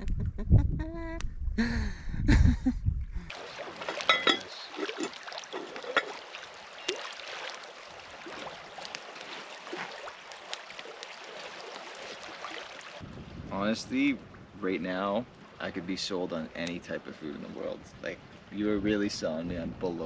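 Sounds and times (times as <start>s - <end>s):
wind on microphone: 0.0s - 3.4s, 13.0s - 15.6s, 17.4s - 20.0s.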